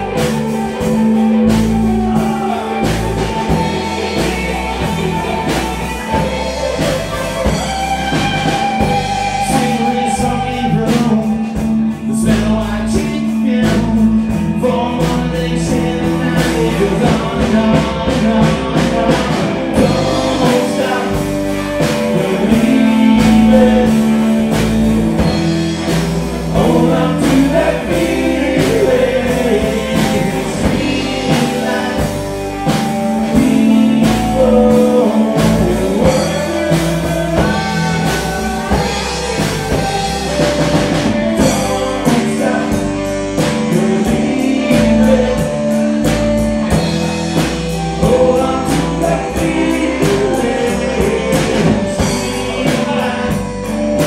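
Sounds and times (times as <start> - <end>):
bass guitar: 0.0 - 54.0
drum kit beat: 0.0 - 54.0
electric guitars: 0.0 - 54.0
man singing lead: 0.0 - 54.0.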